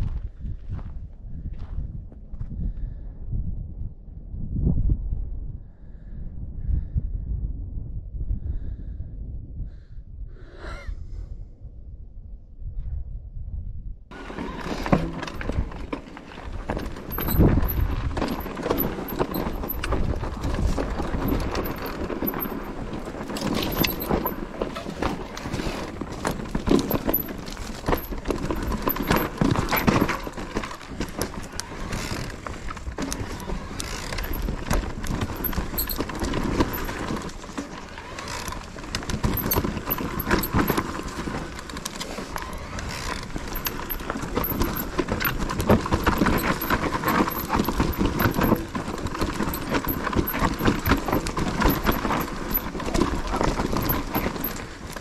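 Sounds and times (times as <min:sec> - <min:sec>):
bike frame and chain rattling: 0:14.1 - 0:55.0
bike tyres on dirt and stones: 0:14.1 - 0:55.0.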